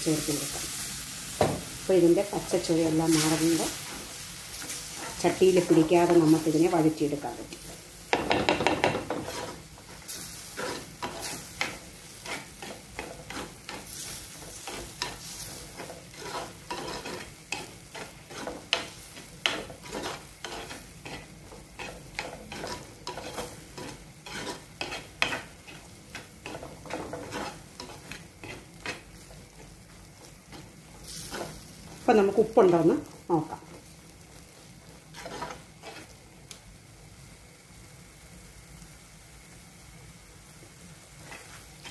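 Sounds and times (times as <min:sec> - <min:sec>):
steady sizzle: 0:00.0 - 0:41.9
metal spoon scraping a pot: 0:14.6 - 0:18.8, 0:19.4 - 0:29.0, 0:35.1 - 0:36.1.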